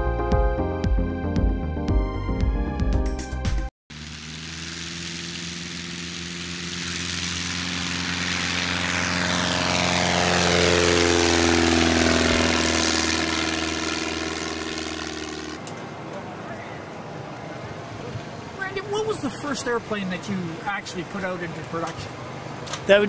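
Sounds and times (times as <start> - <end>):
light aircraft engine and propeller: 3.9 - 23.0.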